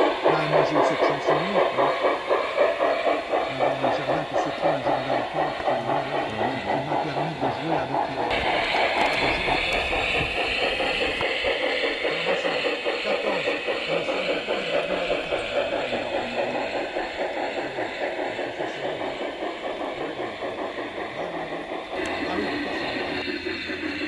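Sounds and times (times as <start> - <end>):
model train running on rails: 0.0 - 24.0.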